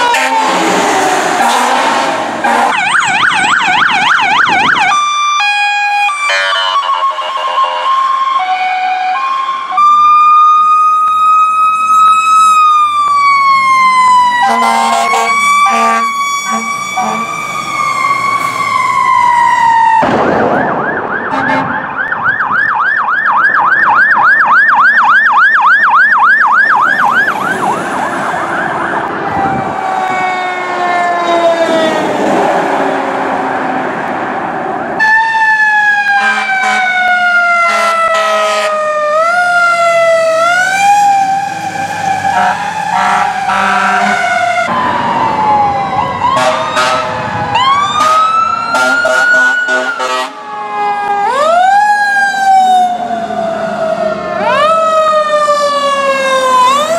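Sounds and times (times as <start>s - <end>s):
fire engine sirens: 0.0s - 56.9s
short horn blasts: 0.1s - 0.5s, 14.5s - 17.3s, 46.4s - 47.1s, 48.8s - 50.3s.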